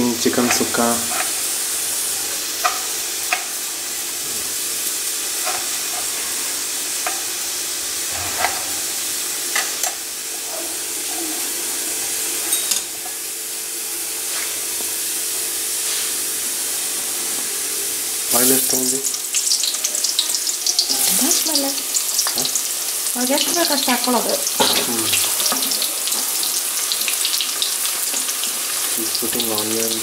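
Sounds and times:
oil popping and crackling: 18.6 - 30.0.

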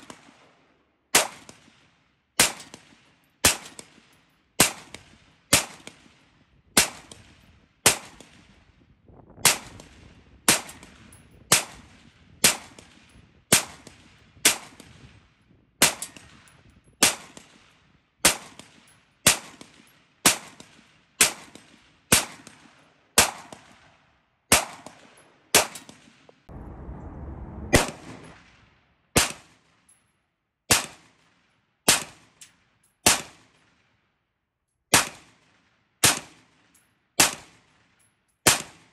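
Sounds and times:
rifle shots with ringing tail: 18.2 - 29.9.

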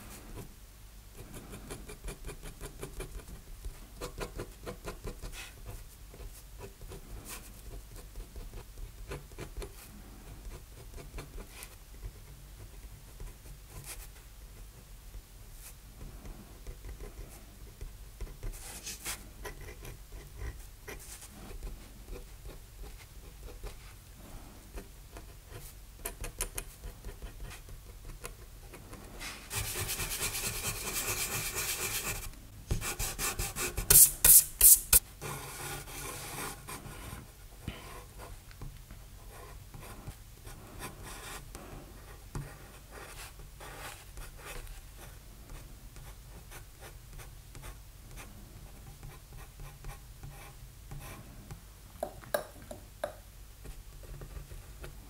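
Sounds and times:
pencil scratching on paper: 24.7 - 37.2
eraser rubbing on paper: 29.2 - 36.6.

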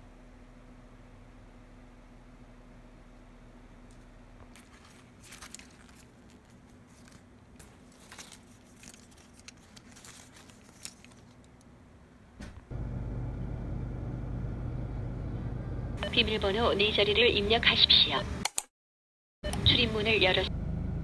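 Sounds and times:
steady hum with low drone: 0.0 - 18.4
fabric rustling: 4.5 - 11.6
paper and plastic tags crinkling: 4.5 - 11.6.

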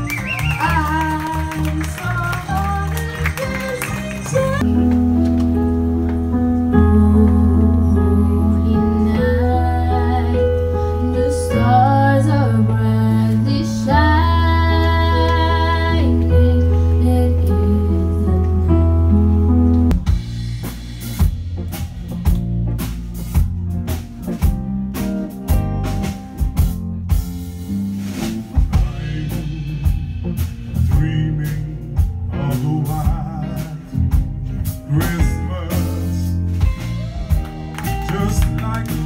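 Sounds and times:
soul band playing: 0.0 - 39.0
man singing: 28.6 - 36.5, 37.8 - 39.0.

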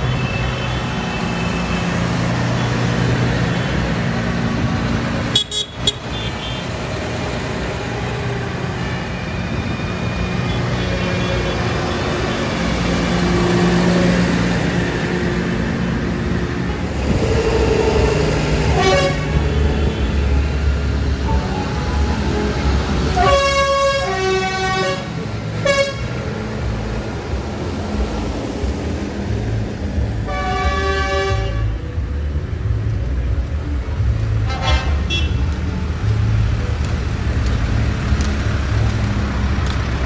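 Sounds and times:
tractor engines rumbling past: 0.0 - 40.0
horns tooting: 18.7 - 20.2, 23.1 - 26.2.

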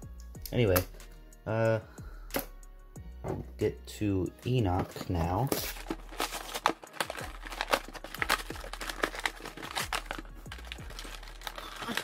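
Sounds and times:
plastic packaging crinkling: 4.8 - 12.0.

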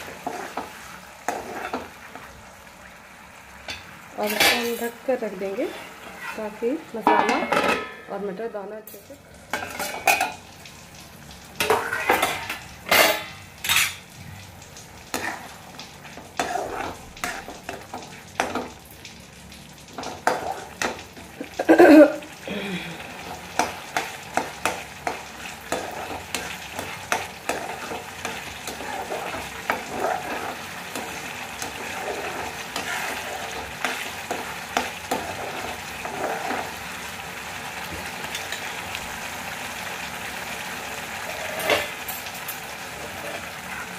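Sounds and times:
spatula scraping a pan: 0.0 - 2.3, 4.2 - 7.9, 9.5 - 10.4, 11.6 - 14.0, 15.1 - 18.7, 20.0 - 21.6, 23.2 - 37.0, 41.1 - 43.9
food sizzling: 0.0 - 43.9.

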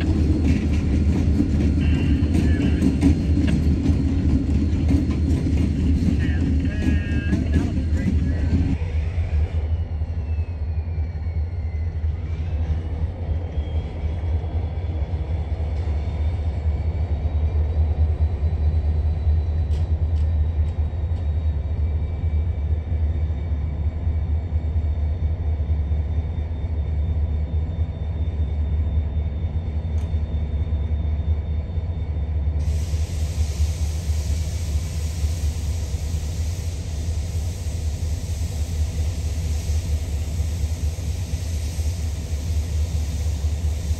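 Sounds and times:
diesel locomotive engine rumble: 0.0 - 43.9
loud hiss: 32.6 - 43.9.

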